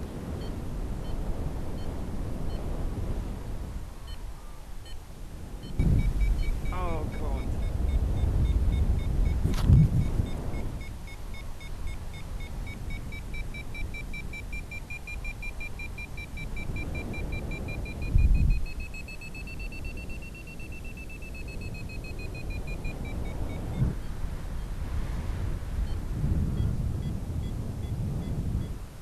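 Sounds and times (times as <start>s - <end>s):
wind rumble on microphone: 0.0s - 29.0s
variometer beeping rapidly: 5.6s - 24.0s, 26.6s - 28.8s.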